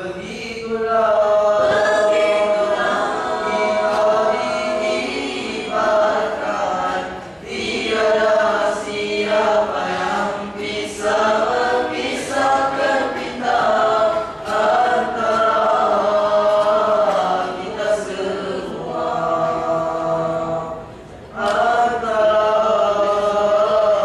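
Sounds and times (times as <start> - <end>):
boys singing into microphones: 0.0 - 24.0.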